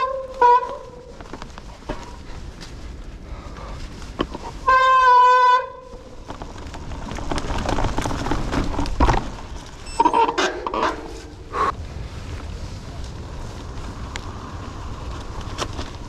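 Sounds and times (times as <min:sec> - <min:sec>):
bike rattling over dirt trail: 0:00.0 - 0:16.0
short squeaks and knocks: 0:09.8 - 0:11.4
bike disc brake squealing: 0:09.8 - 0:11.5.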